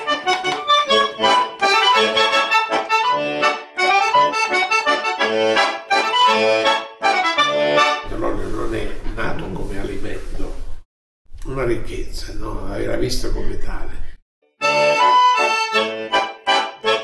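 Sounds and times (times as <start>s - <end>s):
concertina playing folk tune: 0.0s - 9.1s, 14.6s - 17.0s.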